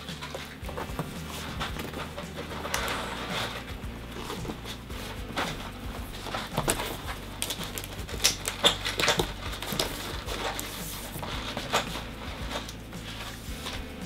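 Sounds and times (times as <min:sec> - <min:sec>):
cardboard rustling and tapping: 0:00.0 - 0:14.0.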